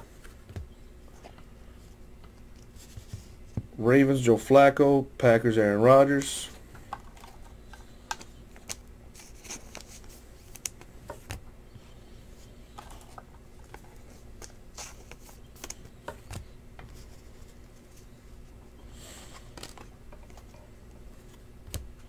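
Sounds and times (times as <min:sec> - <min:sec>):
faint steady hum: 0:00.0 - 0:22.0
trading cards clicking and rustling: 0:06.1 - 0:11.4, 0:12.6 - 0:18.1, 0:19.3 - 0:20.6.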